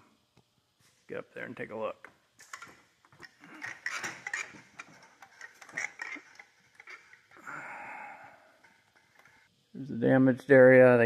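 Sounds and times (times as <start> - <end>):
knocks and creaks on wooden ladder: 2.4 - 7.4.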